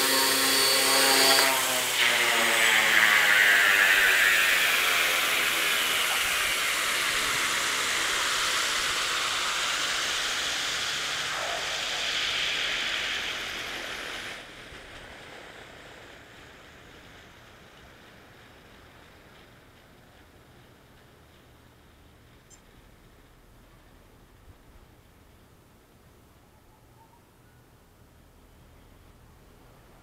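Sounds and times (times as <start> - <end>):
helicopter rotor spinning down: 0.0 - 17.1.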